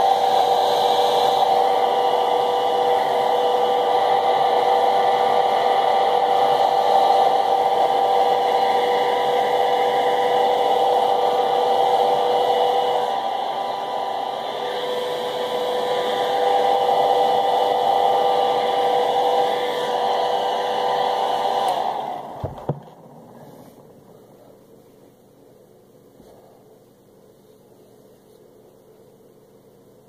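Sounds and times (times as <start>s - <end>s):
hair dryer running: 0.0s - 23.9s.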